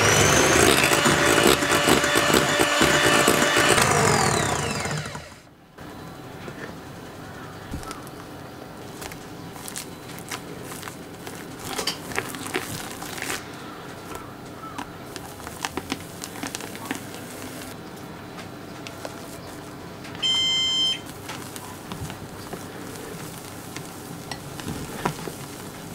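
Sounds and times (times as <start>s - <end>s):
loud high beep: 20.2s - 21.0s.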